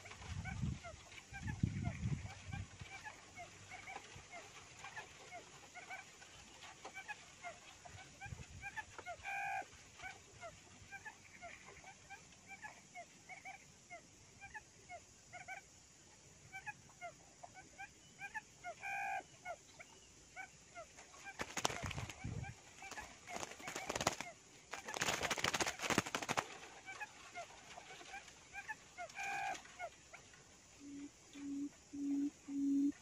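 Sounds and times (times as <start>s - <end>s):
bird wings flapping: 21.1s - 28.3s.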